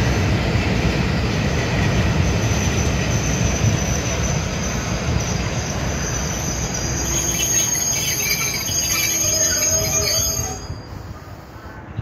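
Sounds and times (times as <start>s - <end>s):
train wheels rumbling on rail: 0.0s - 12.0s
high-pitched wheel squeal: 2.8s - 11.3s.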